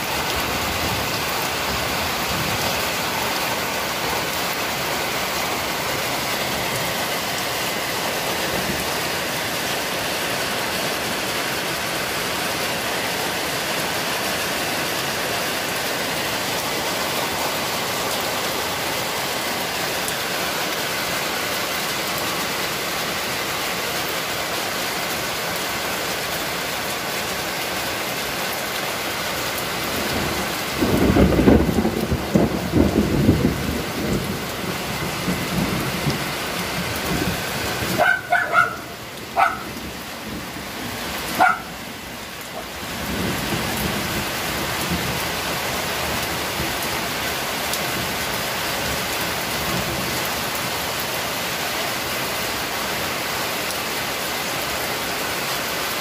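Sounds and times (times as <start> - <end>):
heavy rain on concrete: 0.0 - 56.0
rolling thunder rumble: 30.4 - 38.0.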